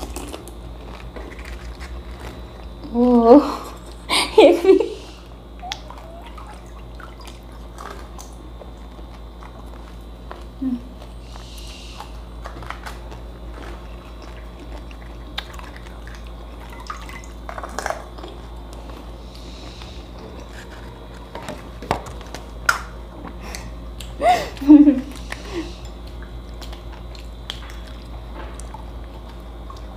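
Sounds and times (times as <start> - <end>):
chewing: 0.0 - 2.8, 5.6 - 22.6, 25.1 - 29.9
steady low hum: 0.0 - 29.9
liquid dripping: 5.6 - 9.5, 13.9 - 18.9, 24.8 - 29.9.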